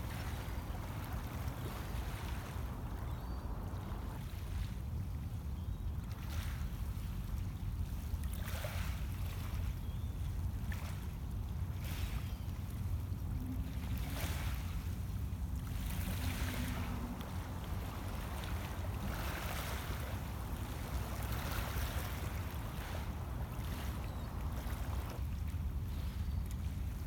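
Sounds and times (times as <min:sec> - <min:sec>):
steady low rumble: 0:14.7 - 0:27.0
waves lapping on pebble shore: 0:15.8 - 0:24.8.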